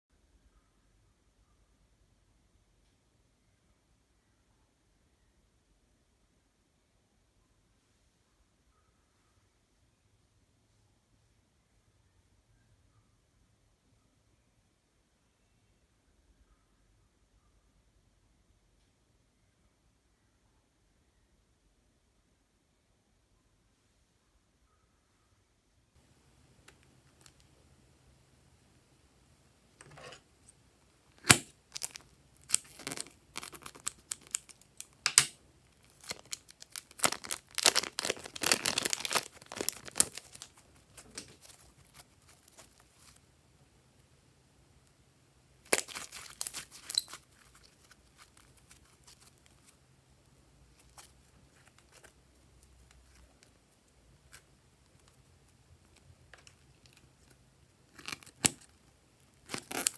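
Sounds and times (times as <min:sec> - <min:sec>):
plastic bags handled: 0:31.2 - 0:35.1, 0:35.7 - 0:43.2, 0:45.6 - 0:49.8
slime squeezed crackling and popping: 0:31.2 - 0:43.1, 0:45.6 - 0:49.7, 0:57.9 - 0:59.9.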